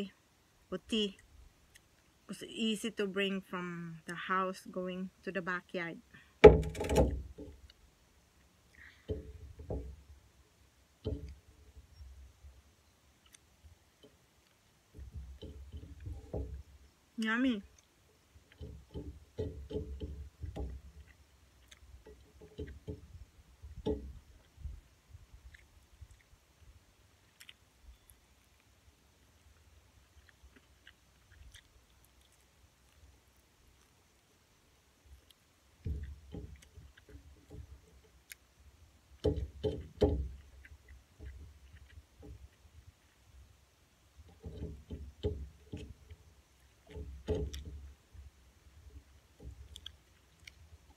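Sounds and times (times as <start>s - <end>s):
person chewing: 21.0s - 22.8s, 25.2s - 39.2s, 40.3s - 44.2s, 49.0s - 50.9s.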